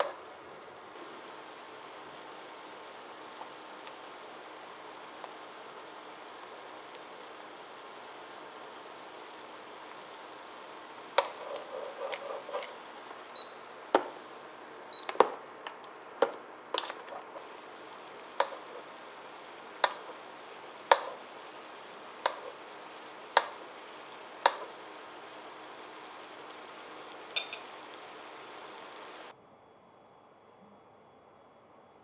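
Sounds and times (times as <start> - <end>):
food simmering with soft hiss: 0.0 - 29.4
pops and spatters: 11.0 - 13.2, 18.2 - 19.0, 19.7 - 23.8.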